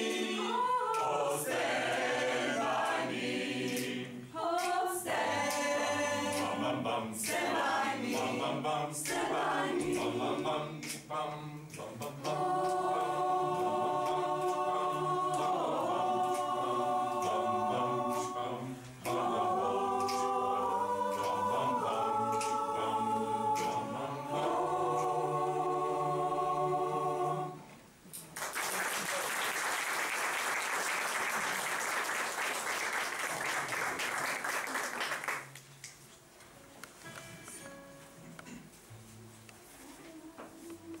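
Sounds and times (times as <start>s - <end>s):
mixed choir singing a cappella: 0.0s - 27.8s
audience applauding: 28.2s - 35.6s.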